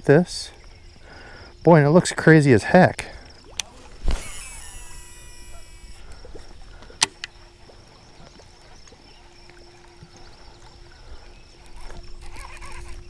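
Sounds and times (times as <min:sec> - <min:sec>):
faint reel hum: 0:00.0 - 0:13.0
fishing reel spool whirring: 0:03.4 - 0:13.0
sharp reel click: 0:03.6 - 0:06.0.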